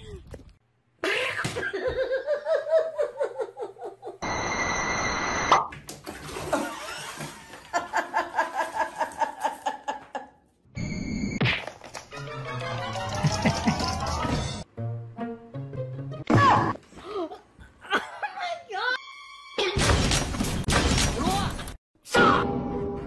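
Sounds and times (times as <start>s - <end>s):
water splashing in bathtub: 5.8s - 9.5s
music: 12.0s - 16.7s, 22.2s - 23.0s.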